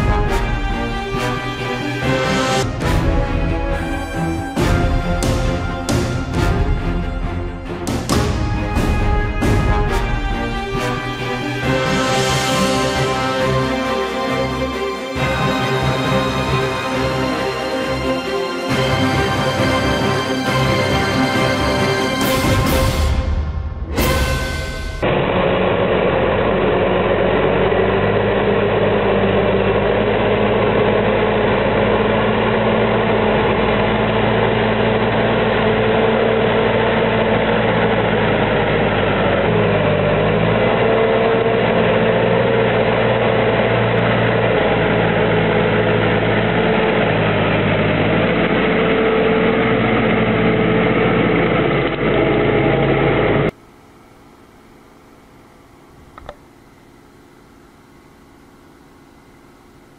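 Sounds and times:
diesel tractor engine running hard: 0.0s - 53.6s.

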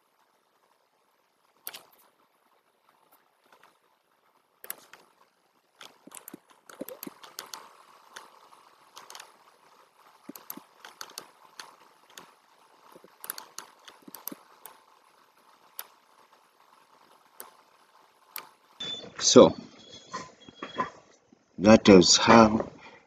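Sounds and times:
computer mouse and keyboard clicking: 1.5s - 2.2s, 2.9s - 3.9s, 4.6s - 18.7s.

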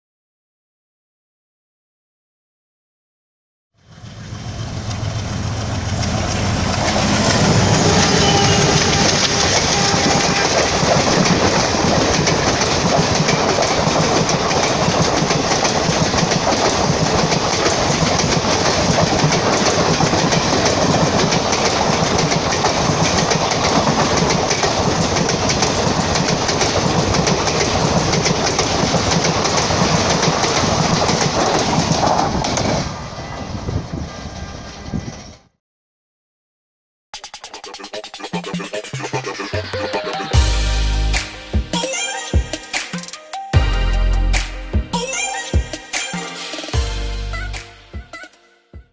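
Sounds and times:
train rushing past: 3.8s - 35.5s
wheels clattering over rail joints: 4.8s - 32.9s.

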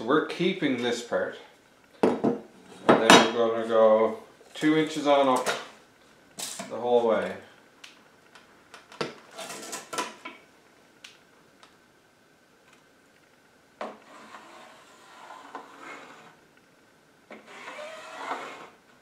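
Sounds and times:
pencil scratching a line: 14.0s - 16.4s.

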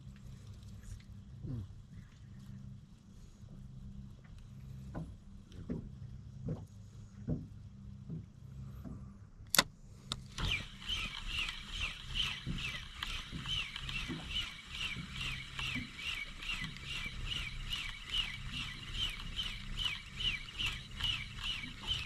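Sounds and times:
fishing reel whirring: 10.4s - 22.0s.

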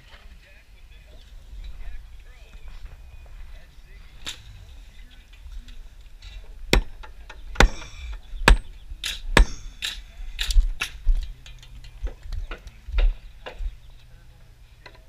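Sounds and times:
sharp knocks: 6.7s - 10.0s.

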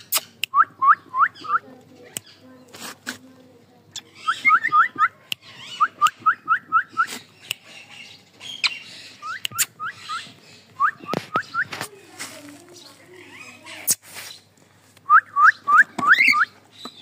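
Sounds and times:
sharp clicks: 9.3s - 9.8s
cockatiel whistled chirps: 15.1s - 16.5s.

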